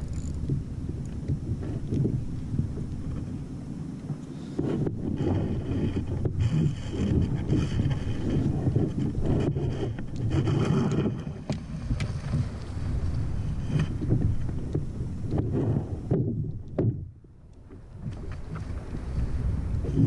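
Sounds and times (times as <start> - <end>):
fishing reel whirring: 0.0 - 0.5
wind buffeting microphone: 0.0 - 20.0.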